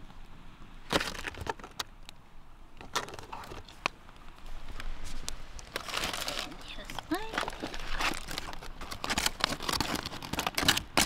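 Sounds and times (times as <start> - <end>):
foil packet crinkling: 5.7 - 11.0.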